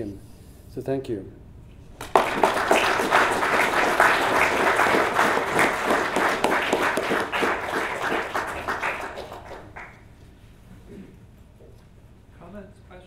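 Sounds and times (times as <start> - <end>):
audience applauding: 2.0 - 10.1.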